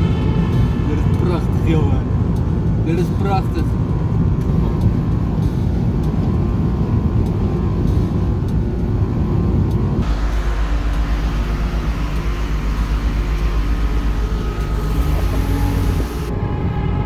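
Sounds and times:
car road noise rumble: 0.0 - 17.0
tyres hissing on wet road: 10.0 - 16.3.

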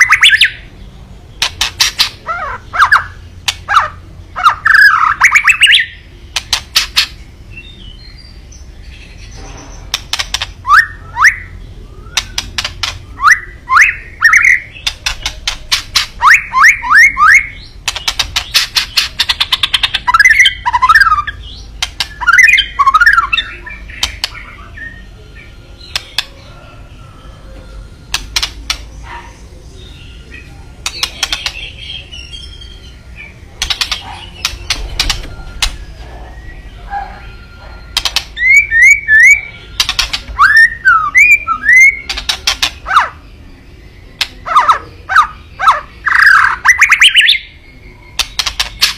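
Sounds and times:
bird clicking and whistling: 1.4 - 2.2, 2.8 - 7.2, 9.9 - 24.5, 25.9 - 26.3, 28.1 - 28.9, 30.8 - 31.8, 33.6 - 36.0, 37.9 - 43.1, 44.2 - 45.3, 48.2 - 48.9.

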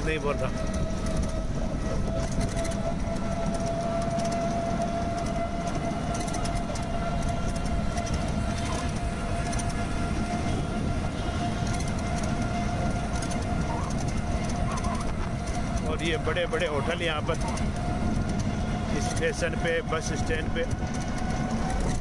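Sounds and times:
low rumble of the ride: 0.0 - 22.0.

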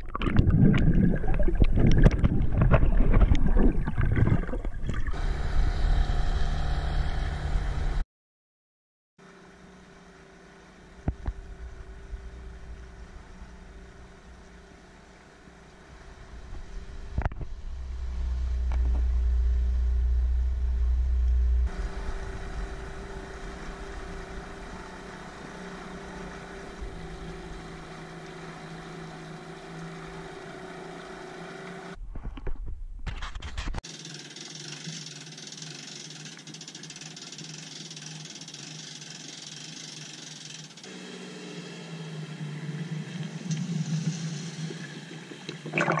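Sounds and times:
water splashing and lapping: 0.0 - 5.2, 43.2 - 46.0
outboard motor running: 5.1 - 8.0, 9.2 - 32.0, 33.8 - 46.0.

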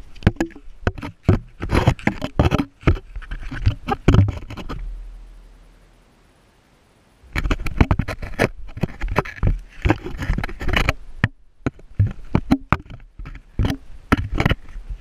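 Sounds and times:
water splashing against camera: 0.0 - 5.1, 7.3 - 15.0
low rumble: 4.8 - 6.3.

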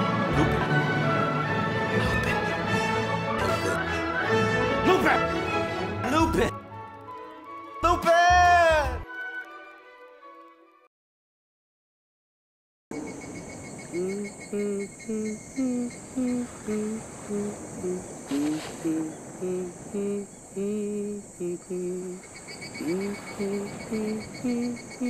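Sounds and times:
person humming a slow tune: 0.2 - 0.9, 13.8 - 25.0
crickets chirping: 12.9 - 25.0
hiss: 16.4 - 20.2.

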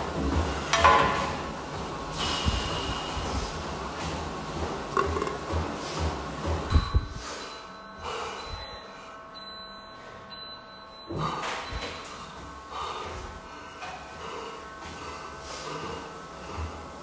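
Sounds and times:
man breathing hard: 7.1 - 9.3, 12.6 - 17.0.

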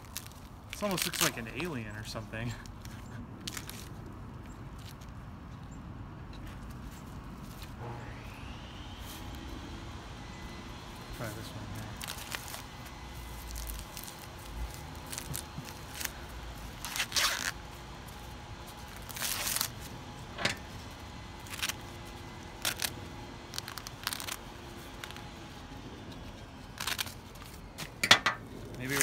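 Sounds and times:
corn husks tearing: 0.0 - 4.0, 11.1 - 19.9, 20.5 - 29.0.

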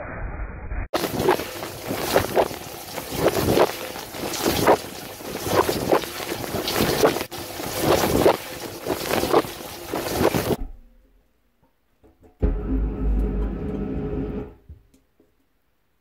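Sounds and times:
dishwasher water jets spraying: 1.0 - 10.6.

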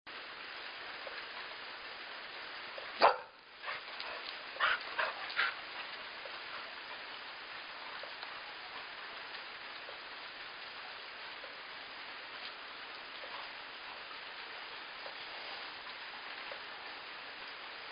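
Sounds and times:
dog barking: 3.0 - 5.6.

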